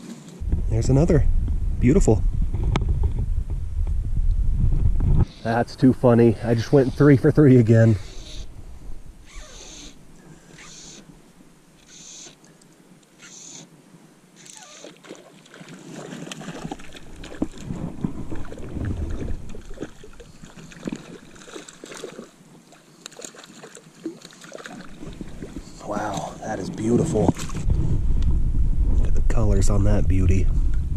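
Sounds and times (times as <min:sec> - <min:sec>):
water splashing: 0:14.4 - 0:27.9.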